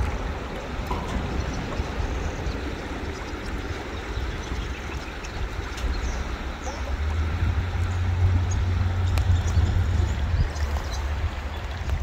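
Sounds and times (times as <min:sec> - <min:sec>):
river water rushing: 0:00.0 - 0:12.0
loud low rumble: 0:05.9 - 0:12.0.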